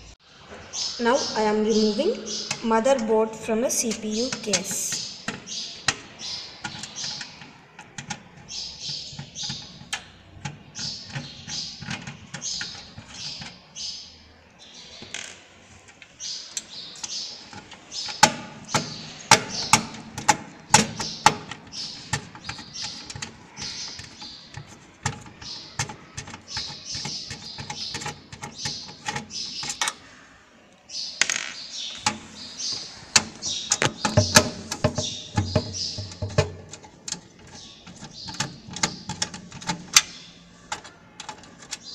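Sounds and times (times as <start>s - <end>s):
high chirping: 30.9s - 40.7s.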